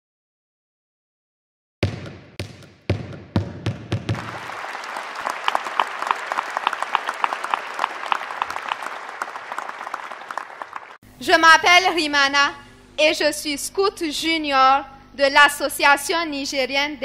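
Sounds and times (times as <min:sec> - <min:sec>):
deep percussive hits: 0:01.8 - 0:04.4
audience clapping: 0:03.9 - 0:11.0.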